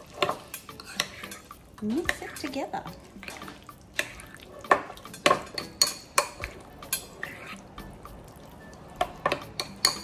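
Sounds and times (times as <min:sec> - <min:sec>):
wet squelch of stirring: 0:00.0 - 0:10.0
spoon clinking against bowl: 0:03.3 - 0:07.3, 0:09.0 - 0:10.0.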